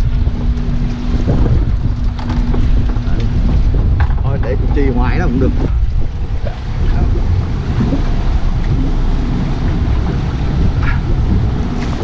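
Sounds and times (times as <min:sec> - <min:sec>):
choppy sea water: 0:00.0 - 0:12.0
wind buffeting microphone: 0:00.0 - 0:12.0.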